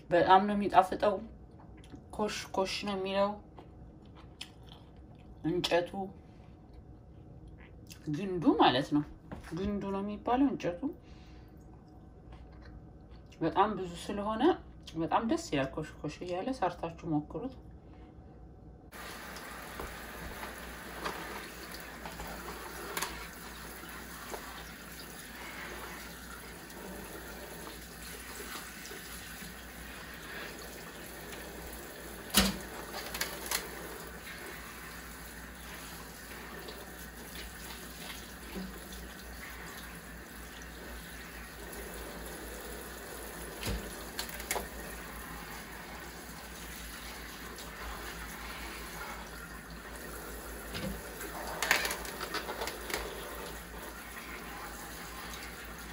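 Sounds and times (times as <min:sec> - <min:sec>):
faucet running into a sink: 0:18.9 - 0:55.9.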